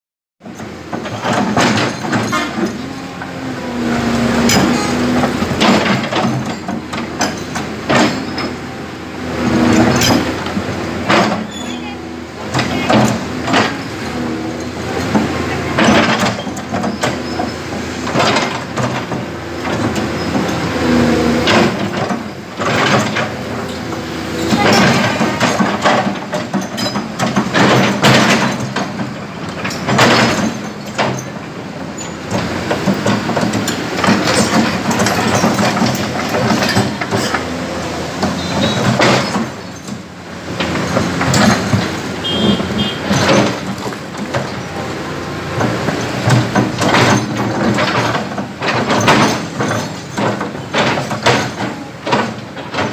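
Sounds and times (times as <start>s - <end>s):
diesel engine running: 0.4s - 52.9s.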